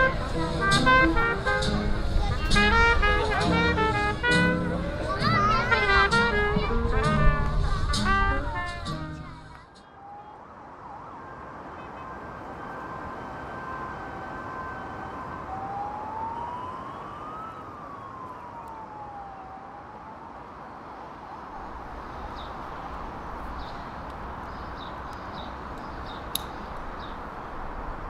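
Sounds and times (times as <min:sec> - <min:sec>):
emergency siren wailing: 0:00.0 - 0:08.7, 0:09.7 - 0:24.4
city traffic hum: 0:00.0 - 0:28.0
sharp click: 0:26.3 - 0:26.6.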